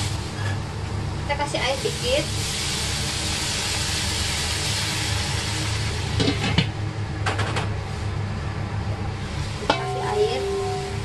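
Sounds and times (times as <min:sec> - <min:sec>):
vegetables sizzling in a wok: 0:00.0 - 0:11.0
metal lid clinking: 0:09.6 - 0:11.0.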